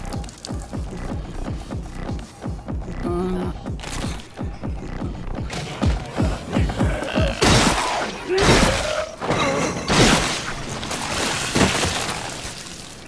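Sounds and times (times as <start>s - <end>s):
groaning voices: 4.7s - 9.9s
wet splatters: 9.9s - 13.0s.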